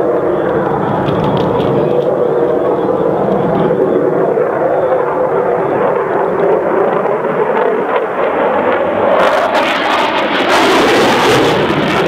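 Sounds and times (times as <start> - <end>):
loud engine drone: 0.0 - 12.0.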